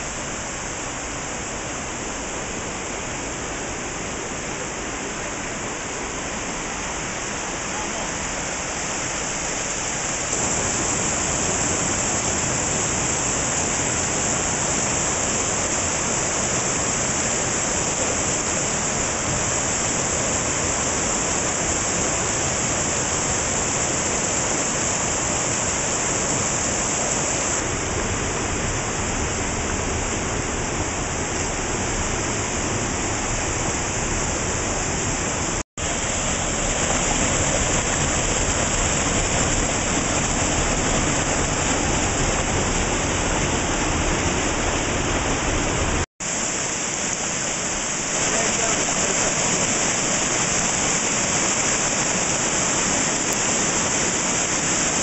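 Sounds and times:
water rushing over rocks: 0.0 - 55.0.

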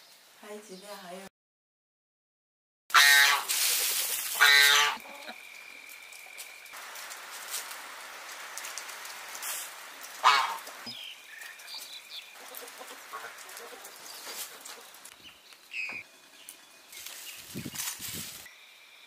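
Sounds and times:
bird chirps: 10.9 - 12.4, 13.9 - 19.0
bird call: 13.1 - 17.9.

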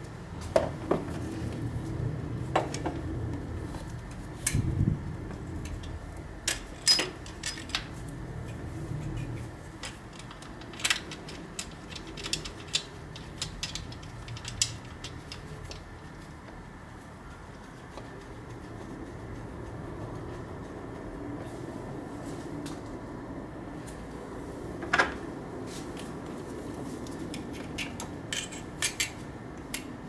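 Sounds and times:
low steady hum: 0.0 - 30.0
metallic clicks and knocks: 9.1 - 15.9.

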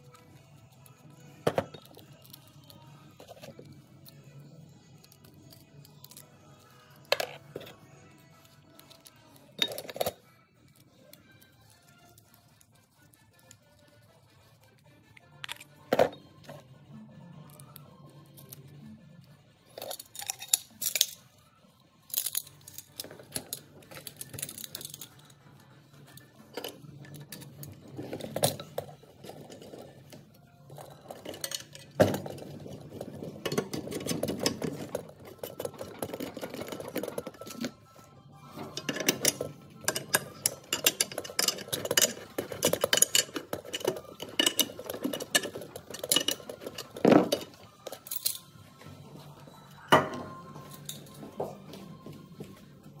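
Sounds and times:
metal parts clinking and clacking: 0.8 - 4.2, 8.7 - 11.4, 19.7 - 21.3, 22.0 - 25.4, 26.0 - 37.8, 38.4 - 48.6, 50.0 - 51.2.

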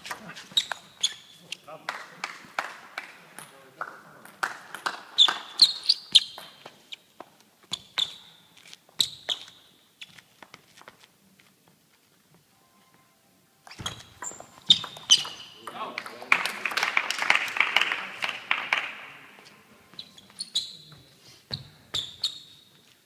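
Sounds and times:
table tennis ball bouncing: 13.7 - 16.6.

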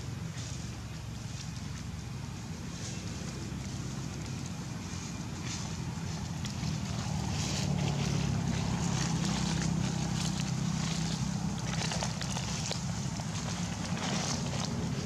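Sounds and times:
distant engine hum: 0.0 - 15.0
dry leaves rustling: 0.0 - 15.0.

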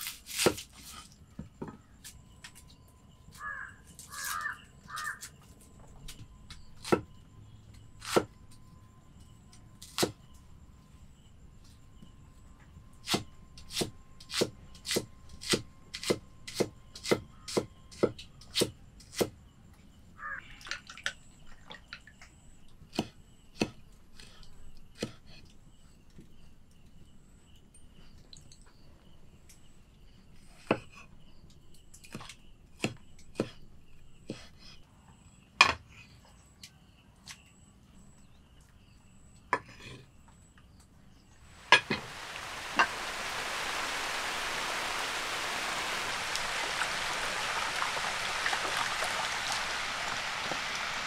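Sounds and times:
crow cawing: 3.4 - 5.3, 20.2 - 20.5.

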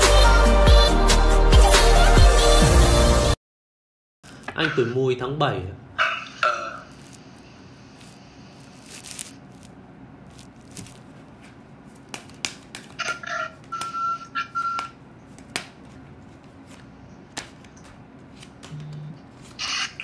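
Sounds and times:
playing cards shuffling: 6.9 - 13.9, 14.8 - 19.7.

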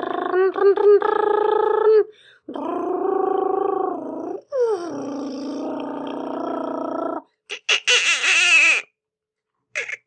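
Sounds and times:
high wavering vocal sounds: 0.0 - 7.9.

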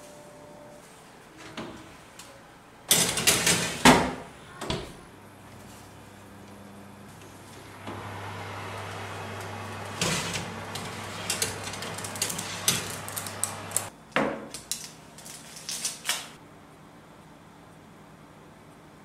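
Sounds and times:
metal tray scraping on wire rack: 9.8 - 13.9.

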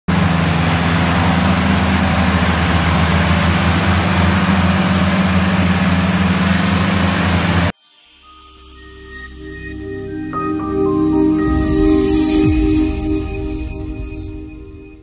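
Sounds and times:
diesel tractor engines droning: 0.1 - 7.7.

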